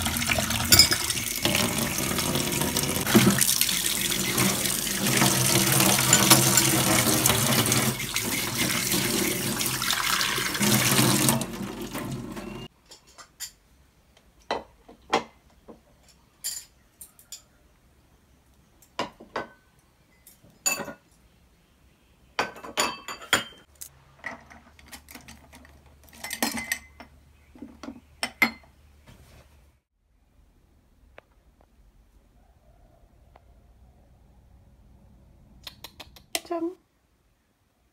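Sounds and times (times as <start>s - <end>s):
tap water running into sink: 0.0s - 12.6s
glassware clinking: 0.6s - 1.6s, 5.2s - 7.4s, 19.4s - 21.0s, 22.4s - 23.7s, 26.2s - 27.1s.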